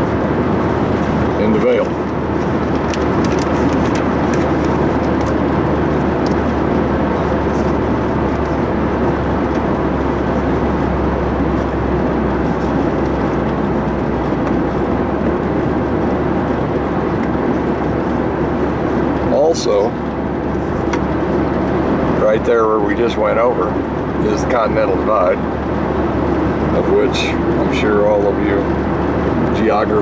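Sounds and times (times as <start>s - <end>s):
car road and engine noise: 0.0s - 30.0s.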